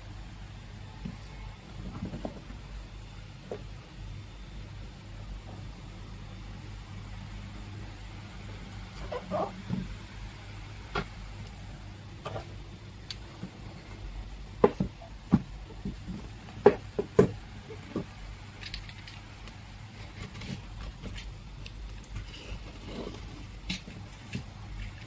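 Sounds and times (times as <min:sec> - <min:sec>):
steady low hum: 0:00.0 - 0:25.0
knocks and taps on cardboard box: 0:14.6 - 0:18.1.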